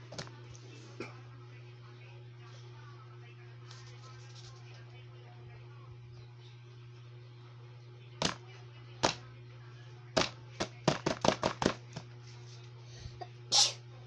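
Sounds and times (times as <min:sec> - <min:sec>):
hands tapping paper on desk: 0:08.2 - 0:08.4, 0:10.2 - 0:12.1.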